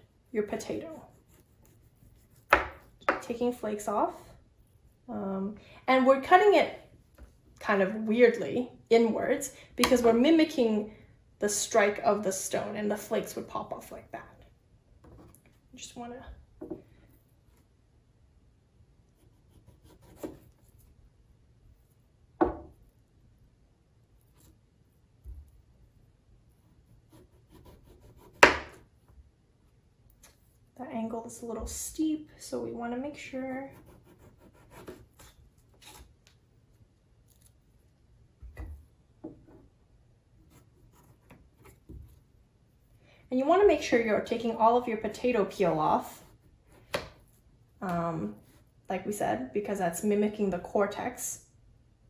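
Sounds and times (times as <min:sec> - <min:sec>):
knife cutting potato on plastic board: 0:00.6 - 0:03.4, 0:19.2 - 0:21.0, 0:26.6 - 0:29.0, 0:33.7 - 0:36.3.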